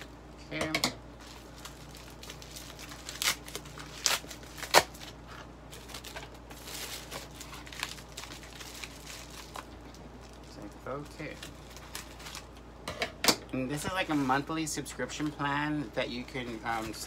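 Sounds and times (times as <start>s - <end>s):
packaging crinkling: 1.2s - 12.7s, 15.1s - 17.0s.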